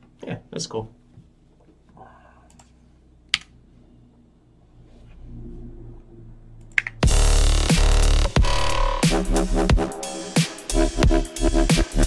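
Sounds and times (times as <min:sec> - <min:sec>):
faint low hum: 0:00.0 - 0:06.8
keyboard and mouse clicks: 0:06.6 - 0:07.0
distorted electronic bass music: 0:06.9 - 0:12.0.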